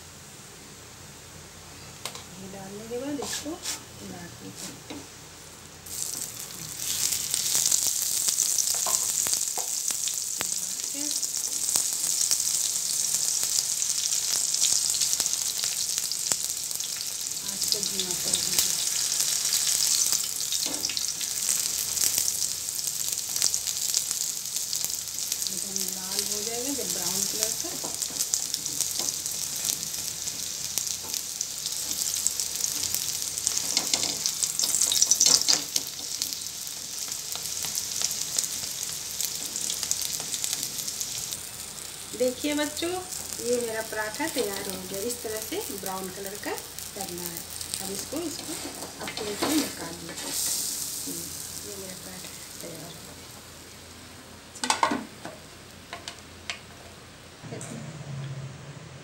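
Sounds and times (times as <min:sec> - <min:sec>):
ghee sizzling on a griddle: 0:02.4 - 0:57.3
wooden spatula scraping griddle: 0:03.2 - 0:03.9, 0:48.2 - 0:50.6.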